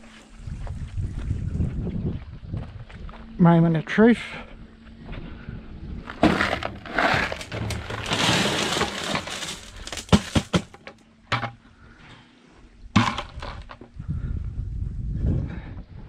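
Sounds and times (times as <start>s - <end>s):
gravel pouring onto metal table: 6.3s - 10.5s
sharp knocks: 13.0s - 13.7s.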